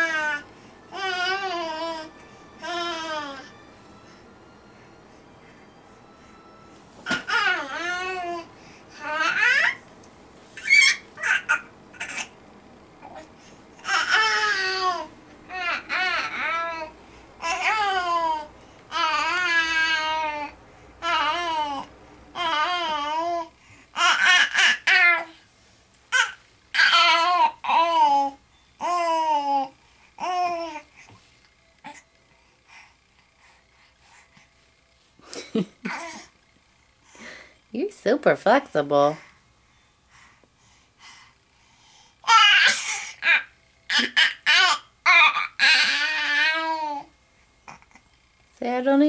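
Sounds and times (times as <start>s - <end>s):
baby babbling: 9.0s - 9.8s, 10.6s - 12.3s, 13.8s - 25.4s, 26.1s - 30.8s, 42.2s - 47.1s
baby long squeal: 10.6s - 12.2s
baby laughing squeals: 10.6s - 12.3s.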